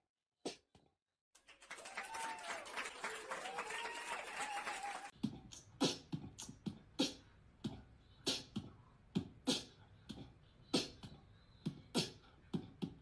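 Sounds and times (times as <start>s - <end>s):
beatboxing kick and snare: 5.1s - 13.0s.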